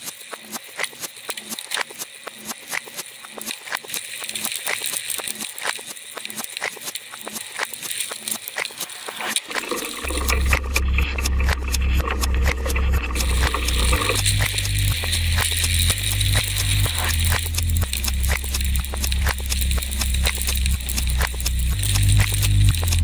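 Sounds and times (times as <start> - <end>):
low rumble: 9.8 - 23.0.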